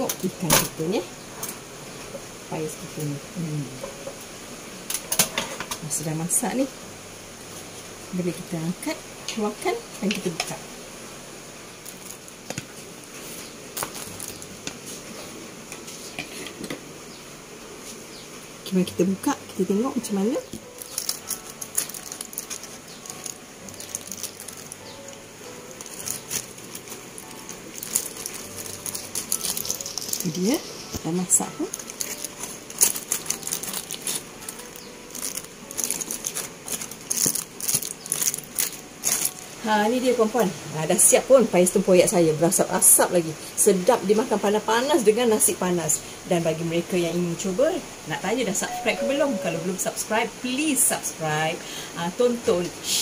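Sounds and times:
low background hiss: 0.0s - 53.0s
foil clicks and rustles: 11.8s - 16.2s, 20.1s - 39.6s.

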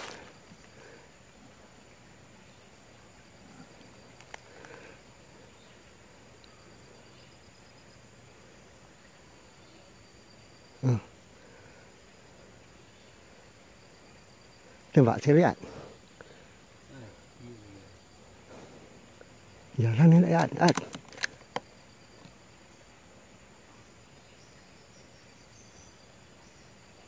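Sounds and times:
insect drone: 0.0s - 27.0s
small click: 20.4s - 22.4s.

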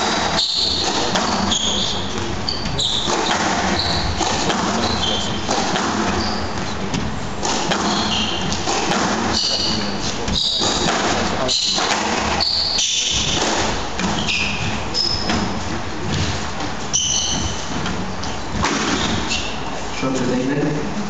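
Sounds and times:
squash ball thudding: 0.0s - 19.8s
shoes squeaking on court floor: 0.0s - 20.4s
murmur of spectators: 0.0s - 21.0s.

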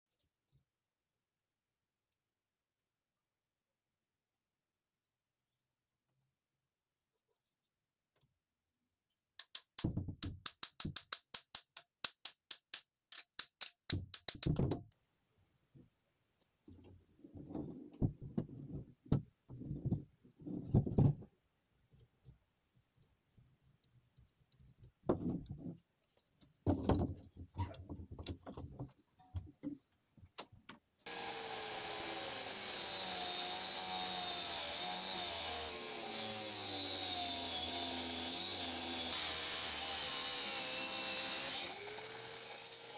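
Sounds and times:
angle grinder cutting metal: 31.1s - 42.9s.

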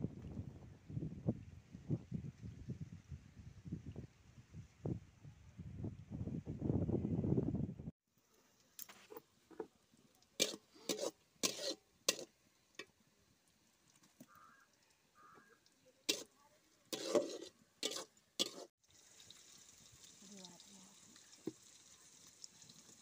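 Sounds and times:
twigs crackling in a fire: 12.1s - 16.8s, 18.1s - 23.0s.

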